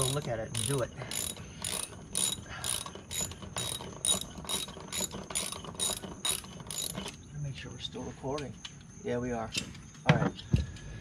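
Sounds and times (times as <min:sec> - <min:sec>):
hand ratchet clicking: 0:00.0 - 0:07.2.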